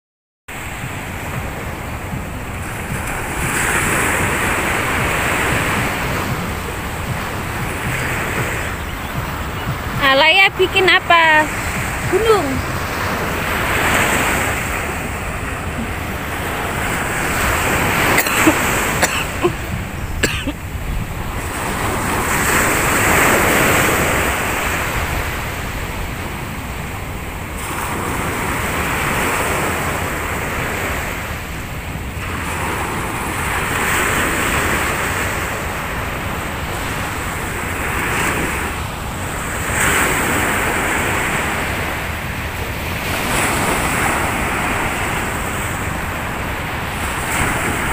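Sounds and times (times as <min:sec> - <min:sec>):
surf breaking on a beach: 0:00.5 - 0:47.9
wind rumbling on microphone: 0:19.4 - 0:47.9.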